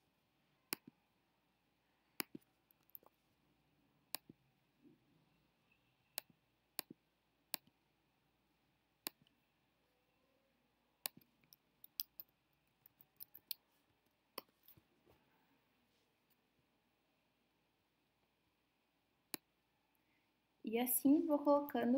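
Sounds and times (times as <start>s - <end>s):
computer mouse clicks: 0.7s - 0.9s, 2.2s - 3.1s, 6.1s - 7.8s, 9.0s - 9.4s, 11.0s - 13.6s.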